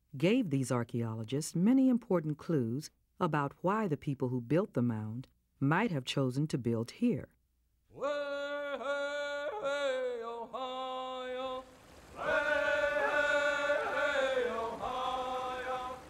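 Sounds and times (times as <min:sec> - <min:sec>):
person chanting in long notes: 0:08.0 - 0:16.0.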